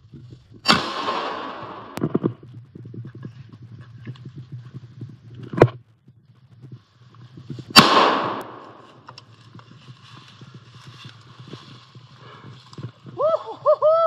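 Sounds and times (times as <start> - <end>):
rifle shot with echo: 0.6 - 2.1, 7.7 - 8.9
rustling in undergrowth: 1.8 - 13.8
footfalls in undergrowth: 8.6 - 13.2.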